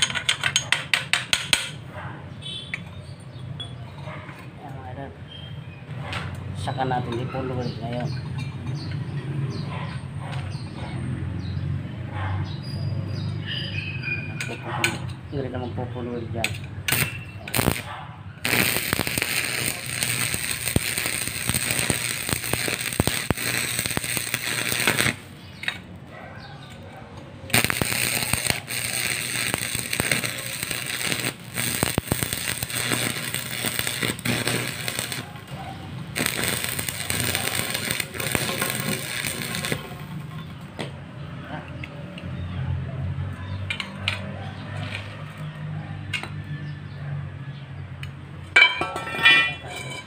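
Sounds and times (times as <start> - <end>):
welding arc crackling: 16.5 - 25.8, 27.5 - 40.7.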